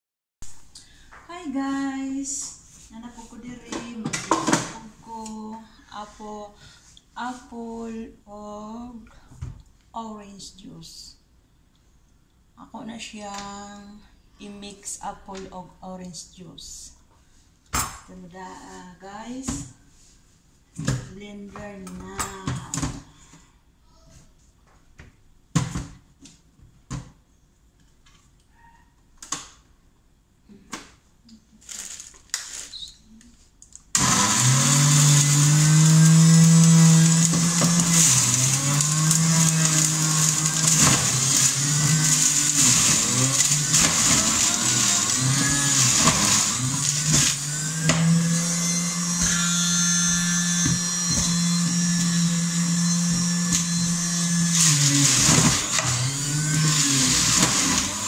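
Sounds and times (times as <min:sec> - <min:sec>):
juicer motor whirring: 0:34.0 - 0:58.0.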